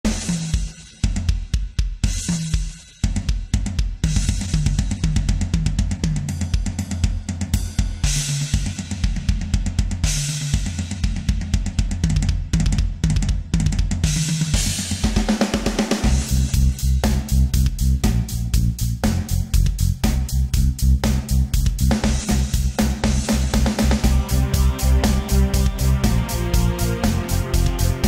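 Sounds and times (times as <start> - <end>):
rock drums: 0.0 - 28.0
low bass line: 16.2 - 28.0.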